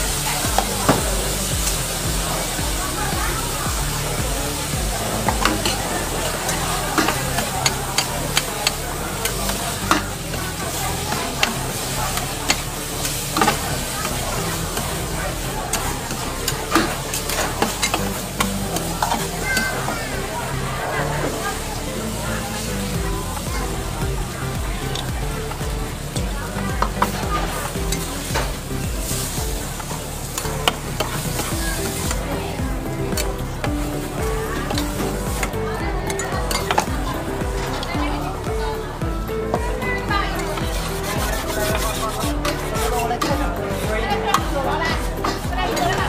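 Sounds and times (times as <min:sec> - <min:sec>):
noodles sizzling on griddle: 0:00.0 - 0:46.0
metal spatulas clacking and scraping: 0:05.1 - 0:15.0, 0:15.7 - 0:19.8.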